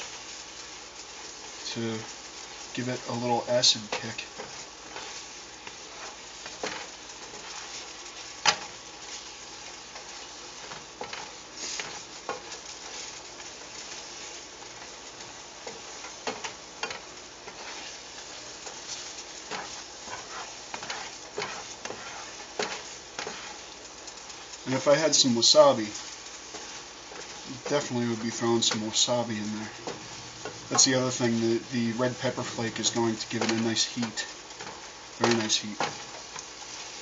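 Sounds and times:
spatula scraping pan: 0.0 - 37.0
vegetables sizzling in skillet: 0.0 - 37.0
spatula tapping pan: 3.8 - 9.2, 9.9 - 17.9, 18.6 - 24.6.

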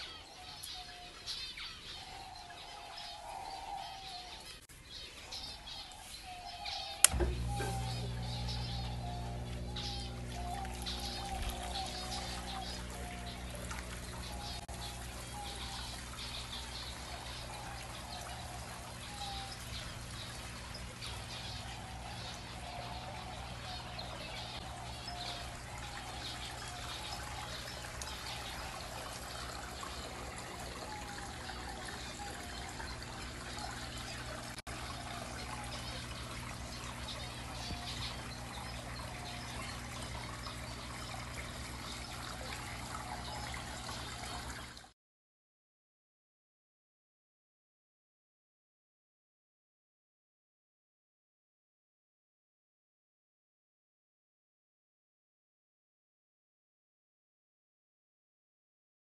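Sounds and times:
small birds chirping: 0.0 - 44.9
trickling water: 0.0 - 45.0
low steady hum: 7.0 - 44.9.

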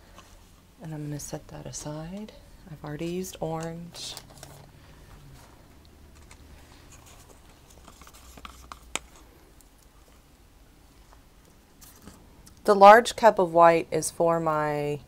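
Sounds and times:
plastic cups scraping and knocking: 3.8 - 10.3.

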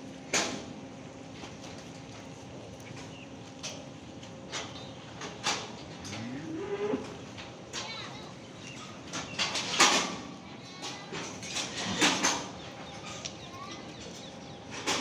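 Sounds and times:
cow mooing: 6.0 - 7.2.

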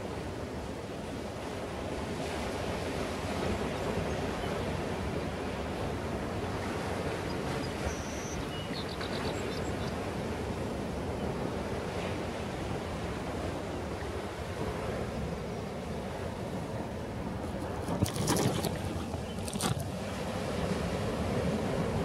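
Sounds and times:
distant surf breaking: 1.6 - 22.0.

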